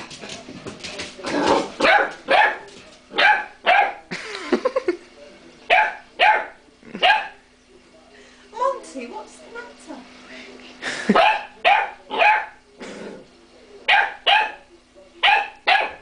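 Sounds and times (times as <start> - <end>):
puppy barking: 1.8 - 4.1, 5.7 - 7.4, 11.2 - 12.6, 13.9 - 16.0.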